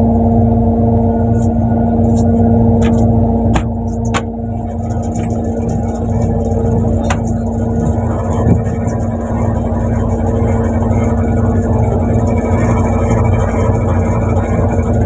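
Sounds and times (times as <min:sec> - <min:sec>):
boat engine droning: 0:00.0 - 0:15.0.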